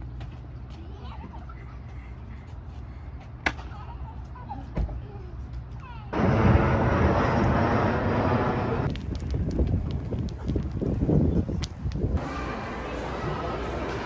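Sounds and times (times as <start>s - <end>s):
jet engines rumbling overhead: 6.1s - 14.0s.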